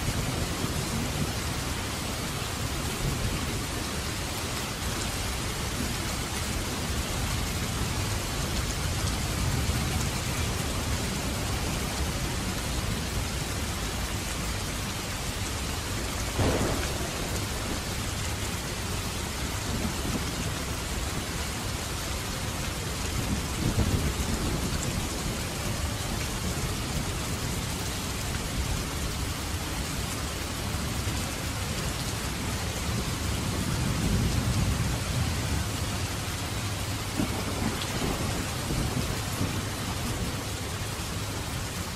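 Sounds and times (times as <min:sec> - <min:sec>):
heavy rain: 0:00.0 - 0:41.9
thunder rumbling: 0:15.9 - 0:29.3, 0:32.4 - 0:41.9.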